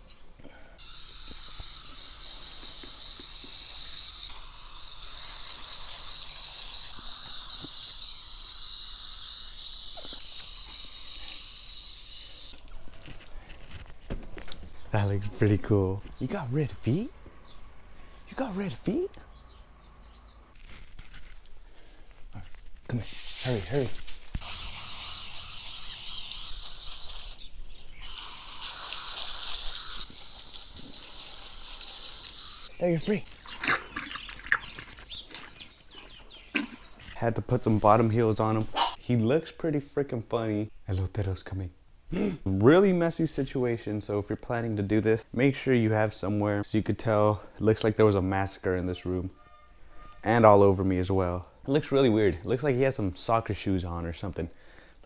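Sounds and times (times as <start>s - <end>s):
hose nozzle spraying water: 0.8s - 12.7s, 22.9s - 34.7s.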